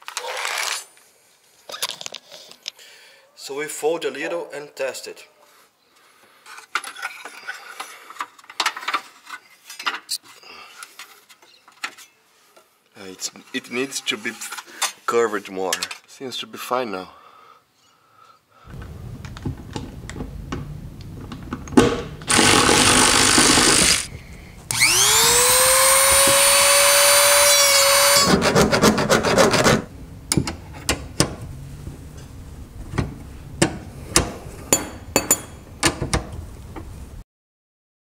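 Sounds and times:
rotary tool cutting metal: 22.3 - 24.1, 24.7 - 29.9.

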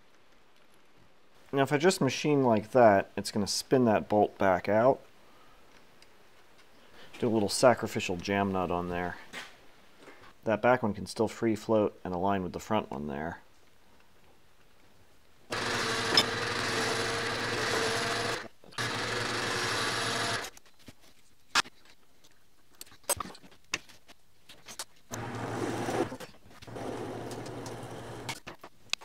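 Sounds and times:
metal lathe running: 15.5 - 20.5, 25.2 - 26.1, 26.7 - 28.4.

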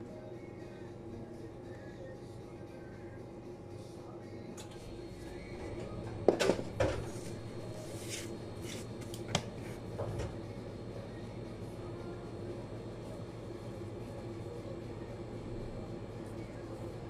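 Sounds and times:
steady low hum: 0.0 - 17.0
kitchen handling sounds: 5.7 - 7.4.

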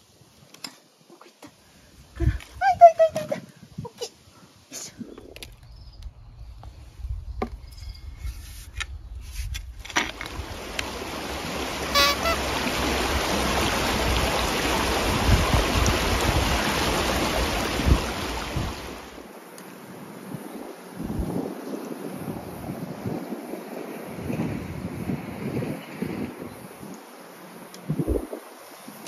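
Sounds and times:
river water rushing: 10.1 - 19.4.

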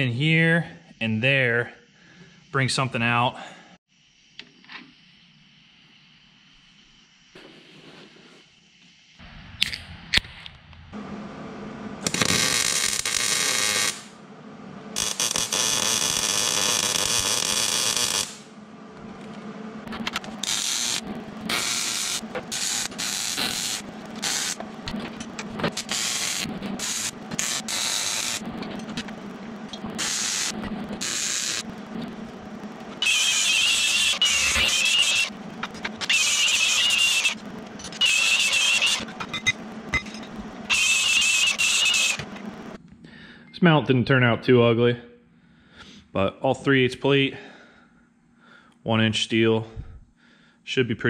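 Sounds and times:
power tools hissing on steel plate: 20.4 - 24.6, 25.2 - 28.9, 30.0 - 31.6, 33.0 - 42.7.

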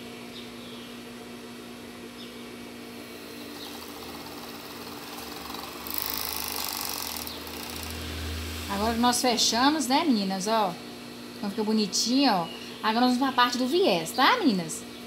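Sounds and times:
overlock machine motor humming: 3.0 - 11.4
hissy machine stitching: 3.3 - 9.1.

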